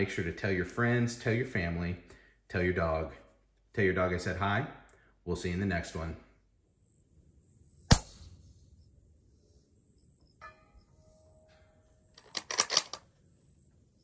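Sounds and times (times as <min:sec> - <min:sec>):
sharp ringing hit: 0:10.4 - 0:11.9
faint chime-like tone: 0:10.4 - 0:12.0
loud sharp clicks: 0:12.2 - 0:13.0.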